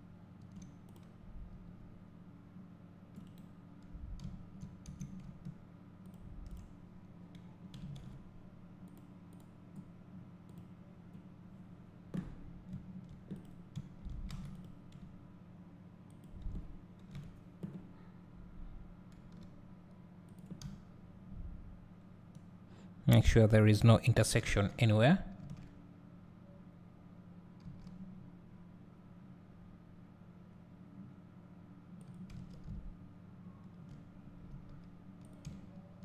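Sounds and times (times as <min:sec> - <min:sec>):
low steady hum: 0:00.0 - 0:36.0
keyboard and mouse clicks: 0:00.4 - 0:01.1, 0:03.1 - 0:06.7, 0:07.3 - 0:08.2, 0:12.1 - 0:15.1, 0:19.1 - 0:19.6, 0:27.6 - 0:28.0, 0:32.0 - 0:32.9.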